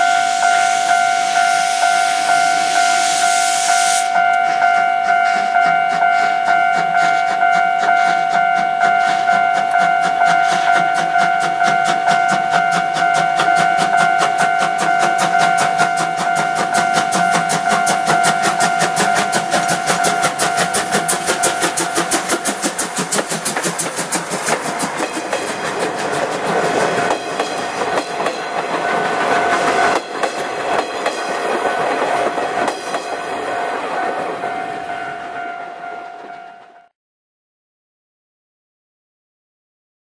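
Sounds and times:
steady ringing tone: 0.0s - 23.2s
steam locomotive chuffing: 0.0s - 36.4s
wheels clicking over rail joints: 4.2s - 34.9s.

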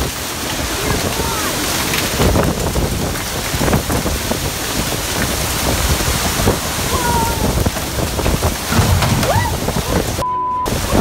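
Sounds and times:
heavy rain and wind rushing: 0.0s - 11.0s
wind buffeting microphone: 0.0s - 11.0s.

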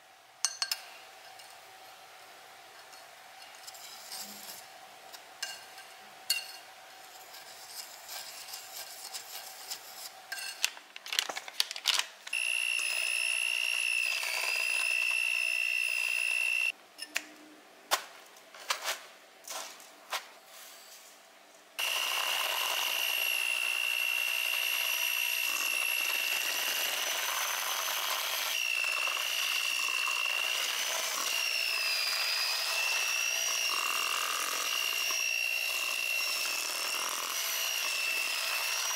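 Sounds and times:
electric hand mixer whining: 12.3s - 16.7s, 21.8s - 38.9s.

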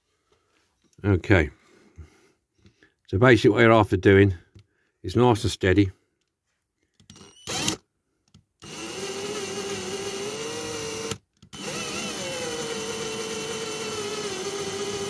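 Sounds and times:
cordless drill drilling: 7.1s - 7.8s, 8.6s - 15.0s.

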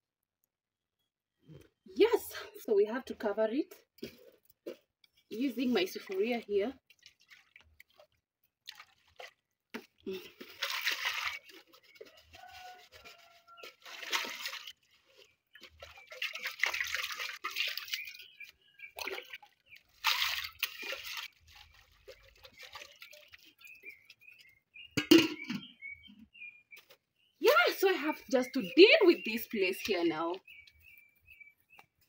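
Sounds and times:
water sloshing in metal bowl: 3.9s - 25.8s, 26.8s - 30.8s.

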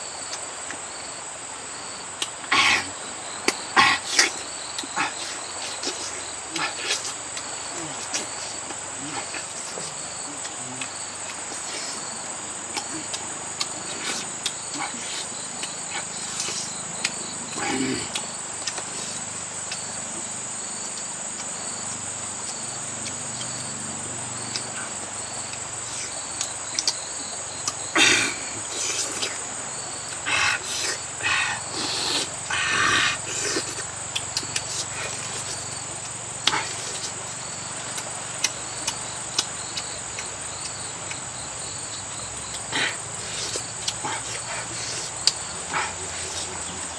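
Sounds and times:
high-pitched insect chorus: 0.0s - 46.9s
man chewing and smacking: 0.2s - 1.0s, 3.3s - 32.5s, 33.2s - 46.9s.

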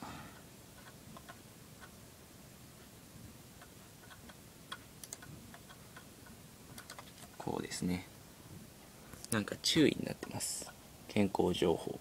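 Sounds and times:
laptop cooling fan hum: 0.0s - 12.0s
hard drive ticking: 0.3s - 7.9s, 9.2s - 11.3s.

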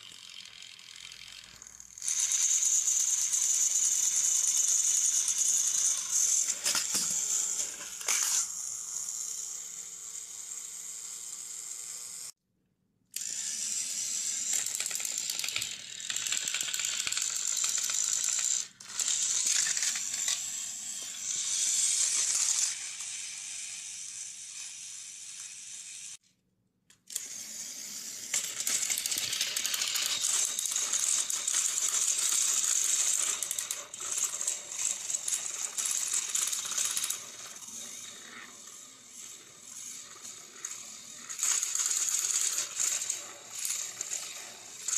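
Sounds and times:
toy motors whining: 0.0s - 12.4s, 13.1s - 26.3s, 26.9s - 44.9s
plastic gears clattering: 1.2s - 8.5s, 28.3s - 44.9s.

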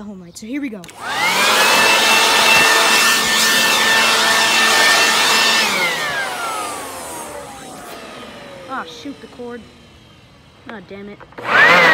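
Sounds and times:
leaf blower whining: 0.8s - 11.9s.

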